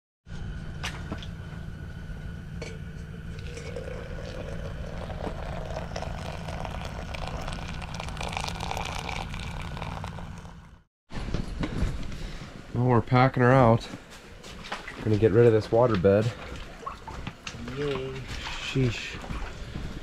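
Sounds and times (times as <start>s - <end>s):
low hum: 0.3s - 14.1s
water pouring into metal pot: 3.3s - 10.7s.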